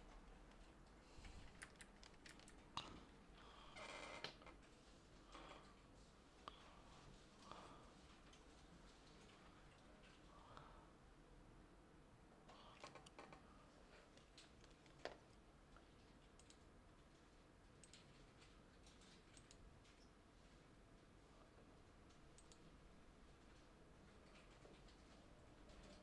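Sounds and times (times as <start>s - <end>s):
faint clicks: 14.2s - 16.7s, 17.8s - 20.2s, 22.0s - 22.7s.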